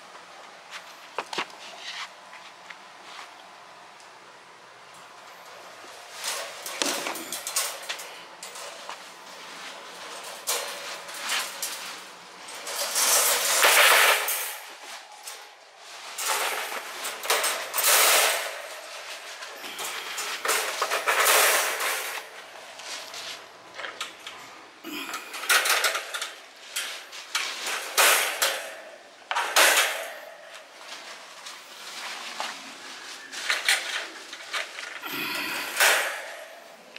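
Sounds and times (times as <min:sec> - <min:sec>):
wire crate panels clanking: 0:05.0 - 0:31.8, 0:33.4 - 0:36.9.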